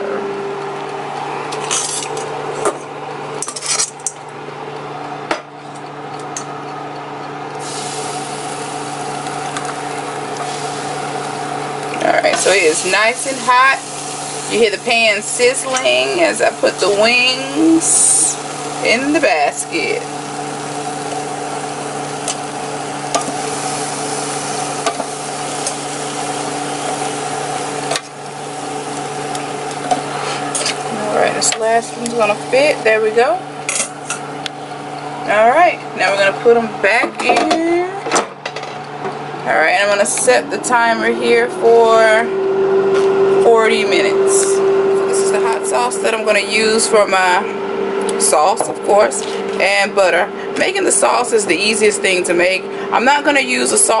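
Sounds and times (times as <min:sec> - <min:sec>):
air fryer humming: 0:00.0 - 0:54.0
air fryer basket clattering: 0:06.0 - 0:35.0
meat sizzling: 0:07.6 - 0:33.1.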